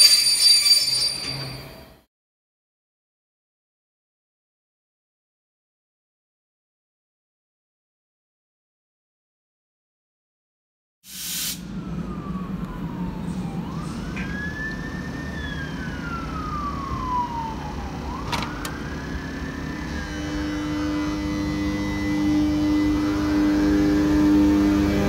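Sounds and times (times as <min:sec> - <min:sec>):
electric locomotive whining: 0:00.0 - 0:02.0, 0:11.6 - 0:25.0.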